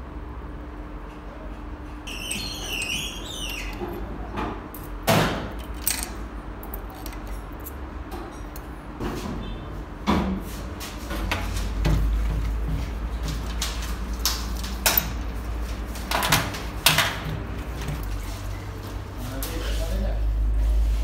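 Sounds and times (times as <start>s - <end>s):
high squeak: 2.1s - 4.1s
metal parts clinking and tapping: 5.5s - 8.6s, 14.6s - 15.3s.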